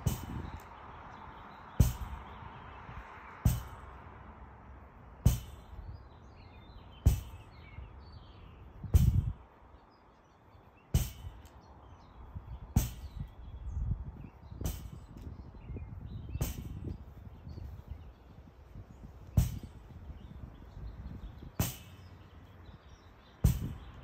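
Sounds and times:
ball smacking against rebounder net: 1.8s - 2.2s, 3.4s - 3.9s, 5.2s - 5.7s, 7.0s - 7.4s, 9.0s - 9.3s, 11.0s - 11.4s, 19.4s - 19.7s, 23.4s - 23.8s.

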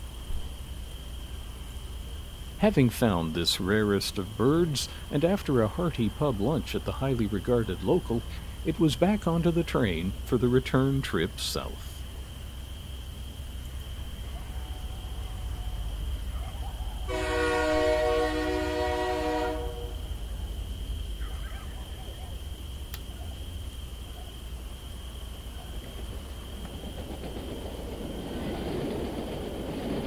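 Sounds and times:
model train rumbling: 0.0s - 21.3s, 22.4s - 30.0s
multi-note locomotive horn: 17.0s - 20.1s.

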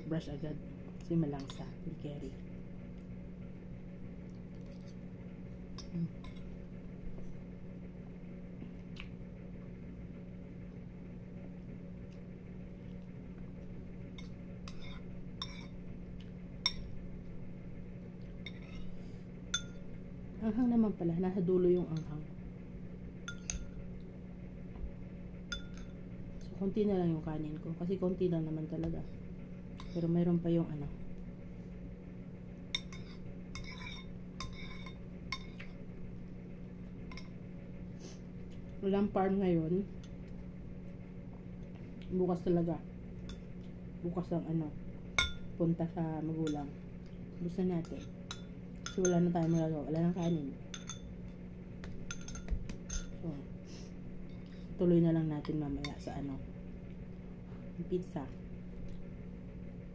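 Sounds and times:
low hum: 0.0s - 59.9s
metal spoon clinking in ceramic bowl: 14.2s - 15.8s, 19.5s - 19.8s, 23.3s - 23.8s, 25.5s - 26.0s, 32.7s - 35.6s, 45.2s - 45.5s, 47.8s - 51.1s, 51.8s - 53.2s.

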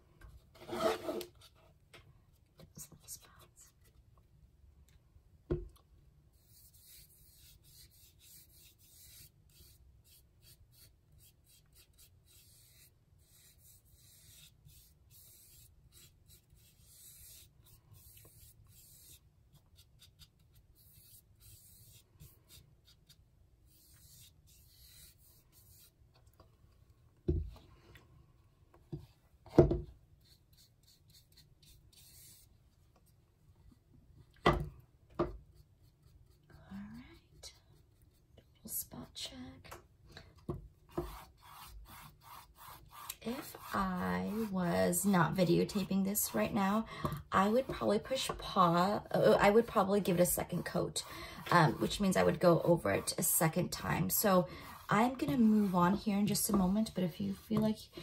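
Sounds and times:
paintbrush scratching on canvas: 6.3s - 26.0s, 30.2s - 32.6s, 40.9s - 58.0s.

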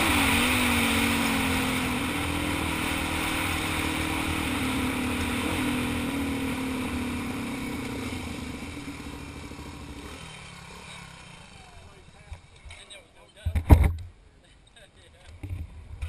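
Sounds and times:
motorcycle engine running: 0.0s - 12.8s.

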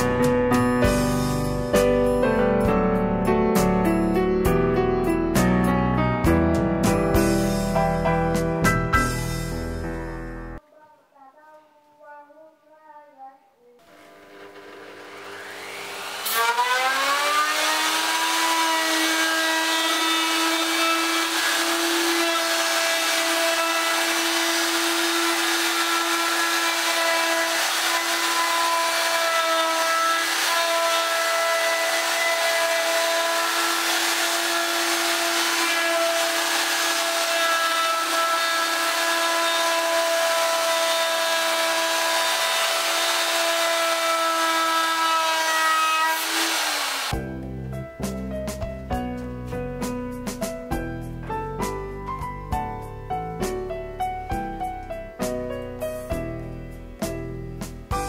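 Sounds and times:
electric router whining: 13.8s - 47.2s.

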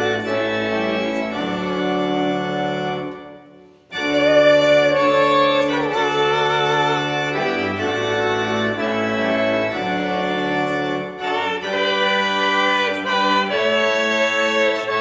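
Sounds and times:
church organ playing a hymn: 0.0s - 15.0s.

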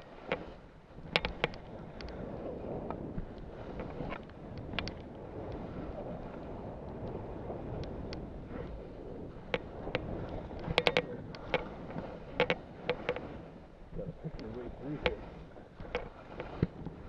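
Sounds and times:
wind on microphone: 0.0s - 17.0s
sharp clicks and clacks: 9.5s - 11.7s.

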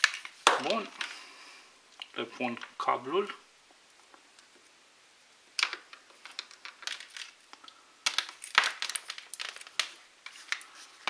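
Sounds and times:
plastic headphones clicking: 5.6s - 10.7s.

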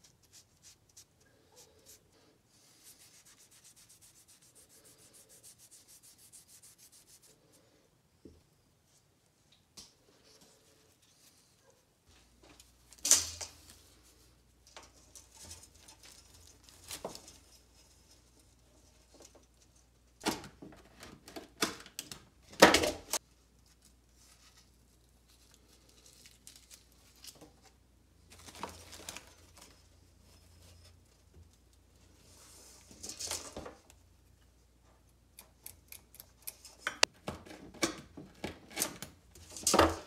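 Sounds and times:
rustles and small knocks: 8.2s - 35.1s.

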